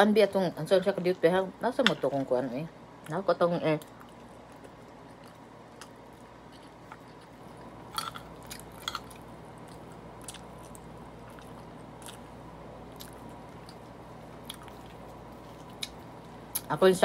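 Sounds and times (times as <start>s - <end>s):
faint steady hum: 0.0s - 17.0s
person chewing and lip smacking: 3.8s - 16.7s.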